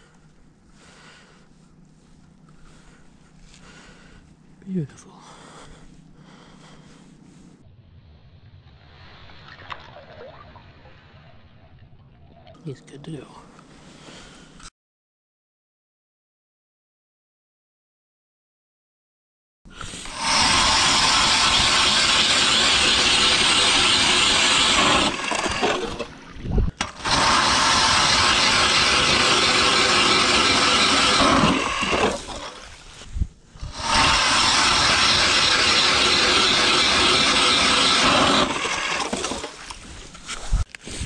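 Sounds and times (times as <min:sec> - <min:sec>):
electric ice auger drilling: 0:19.7 - 0:26.2, 0:26.8 - 0:39.9
falling motor whine: 0:19.8 - 0:39.7.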